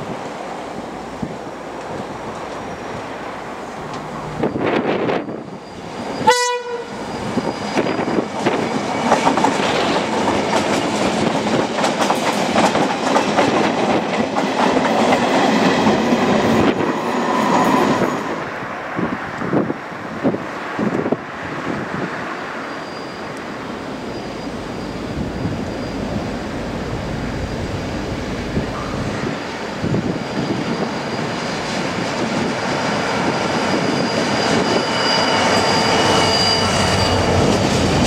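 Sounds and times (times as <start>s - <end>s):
diesel locomotive engine: 0.0s - 38.0s
train horn toot: 6.2s - 7.0s
train wheels clattering on rails: 7.0s - 18.5s.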